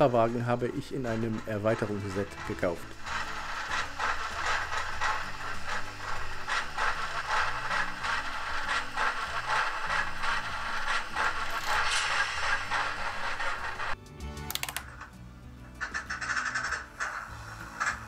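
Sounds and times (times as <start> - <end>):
model train cogwheel clatter: 0.0 - 15.1, 15.8 - 18.0.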